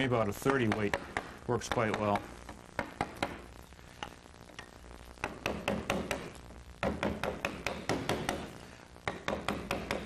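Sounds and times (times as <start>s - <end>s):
mallet tapping gouge into wood: 0.4s - 3.4s, 5.2s - 10.0s.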